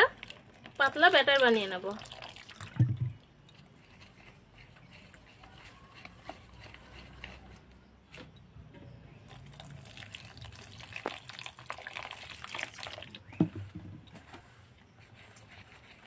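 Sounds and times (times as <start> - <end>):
water pouring into a bowl: 1.1 - 3.1, 9.3 - 13.3.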